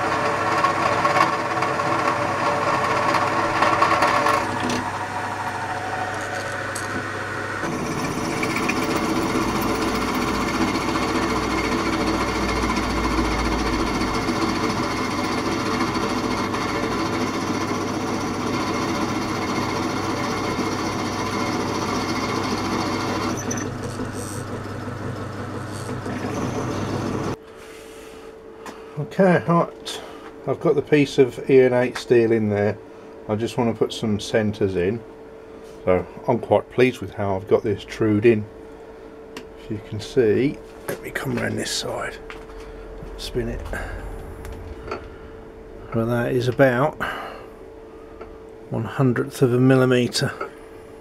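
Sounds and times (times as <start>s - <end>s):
pillar drill boring through steel: 0.0s - 27.4s.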